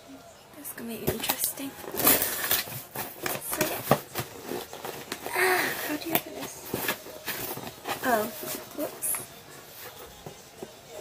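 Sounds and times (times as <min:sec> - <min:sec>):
tearing rustle: 0:01.8 - 0:10.1.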